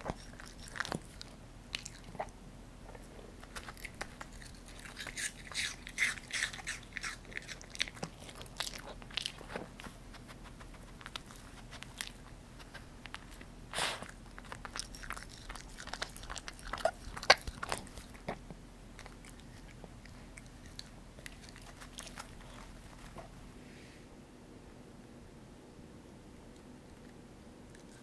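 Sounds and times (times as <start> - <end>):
dog sniffing and licking: 0.0 - 2.3, 3.4 - 23.4.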